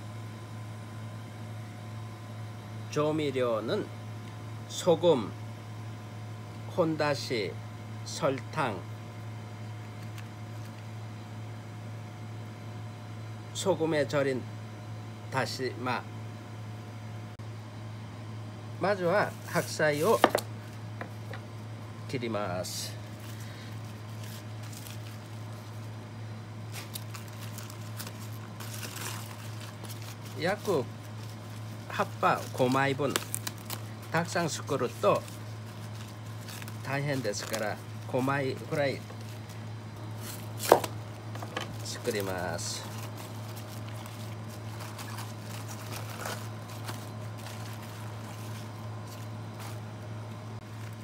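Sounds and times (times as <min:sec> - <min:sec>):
steady low hum: 0:00.0 - 0:51.0
cabbage leaves being pulled off: 0:26.7 - 0:39.0
cabbage leaves snapping: 0:32.6 - 0:34.2.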